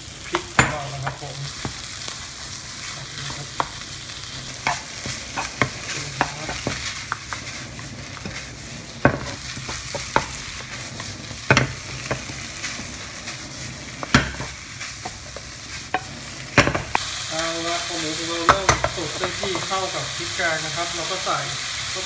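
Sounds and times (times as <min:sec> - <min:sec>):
meat sizzling in a frying pan: 0:00.0 - 0:22.0
spatula scraping and tapping pan: 0:02.8 - 0:17.0.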